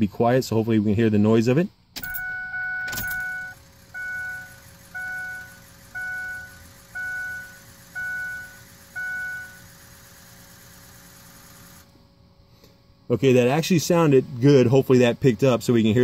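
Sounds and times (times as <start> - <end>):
faint steady hum: 0.0 - 16.0
dashboard warning chime: 2.0 - 9.6.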